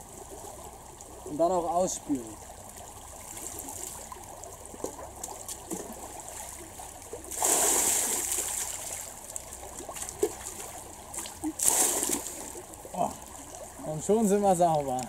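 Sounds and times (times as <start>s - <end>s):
stream running over stones: 0.0s - 15.0s
water splashing into stream: 2.1s - 13.9s.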